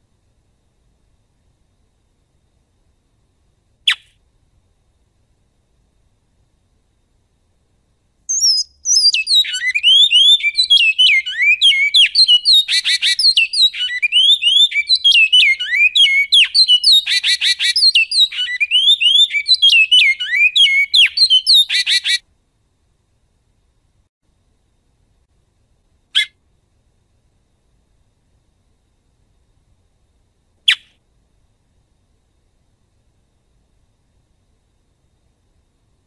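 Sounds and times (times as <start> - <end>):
bird singing whistled notes: 8.3 - 22.2, 30.7 - 31.0.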